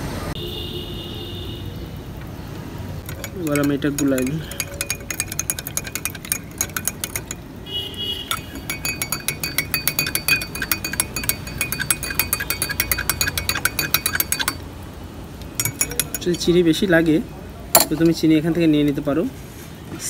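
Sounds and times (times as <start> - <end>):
teaspoon clinking in glass mug: 3.0 - 7.4, 8.2 - 14.6, 15.6 - 16.5.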